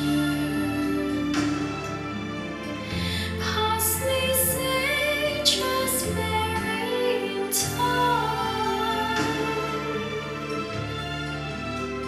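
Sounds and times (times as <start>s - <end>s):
woman singing: 0.0s - 1.7s, 3.0s - 10.6s
sustained bass notes: 0.0s - 12.0s.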